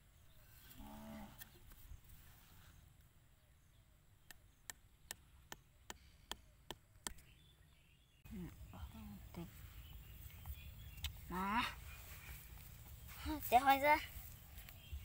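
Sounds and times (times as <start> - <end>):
taps on bamboo stake: 4.2 - 7.2.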